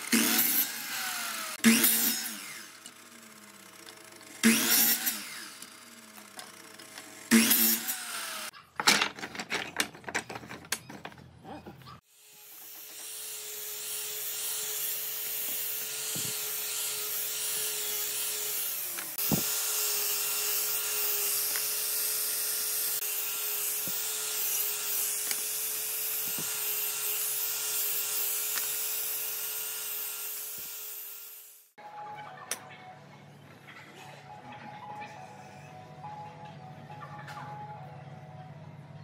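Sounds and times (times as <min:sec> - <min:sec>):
angle grinder sanding wood: 0:00.0 - 0:08.5, 0:11.9 - 0:31.8
grinder click: 0:28.4 - 0:28.8.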